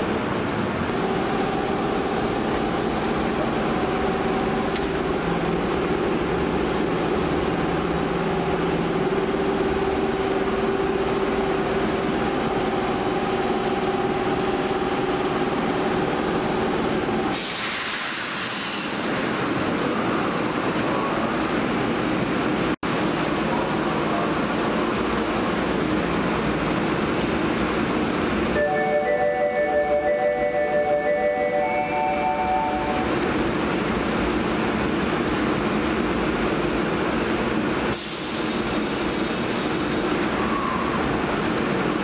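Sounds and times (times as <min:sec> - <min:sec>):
subway train electrical hum: 0:00.0 - 0:42.0
compressed-air hiss: 0:17.3 - 0:19.1.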